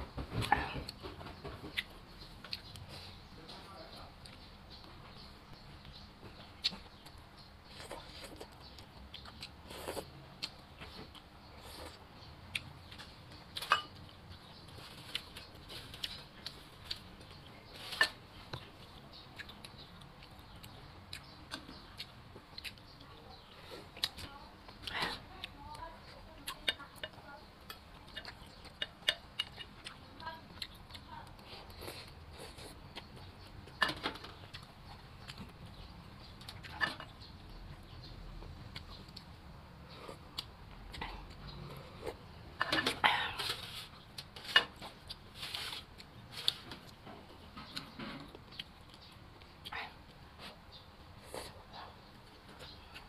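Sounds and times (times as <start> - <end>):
person chewing with wet smacks: 5.8 - 17.6, 18.5 - 37.2
metal spoon clinking against bowls: 13.6 - 14.0.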